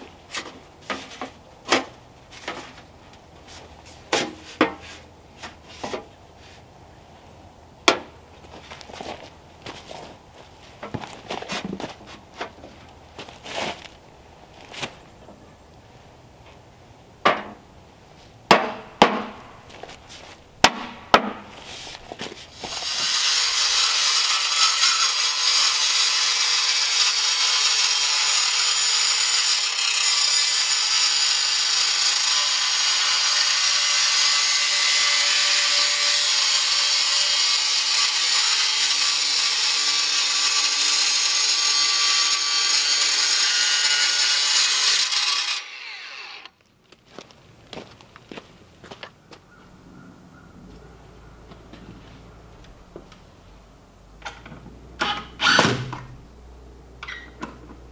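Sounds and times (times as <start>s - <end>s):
sharp knocks: 18.5s - 19.5s, 20.6s - 21.5s
angle grinder cutting steel: 22.6s - 46.6s.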